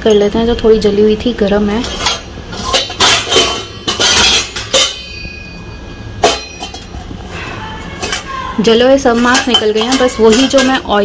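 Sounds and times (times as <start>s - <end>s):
metal pots knocking and clinking: 1.8s - 7.4s, 8.0s - 11.0s.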